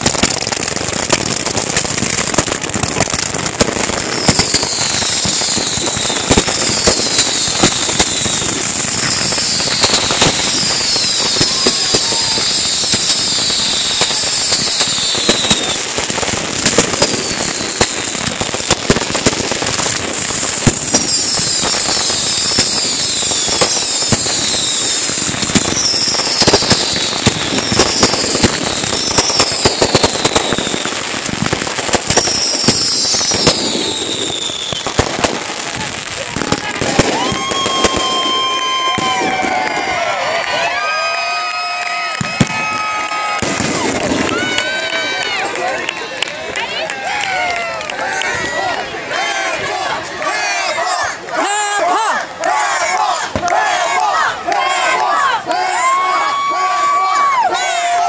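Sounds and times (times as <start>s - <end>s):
fireworks crackling and popping: 0.0s - 58.0s
falling firework whistles: 3.0s - 39.9s.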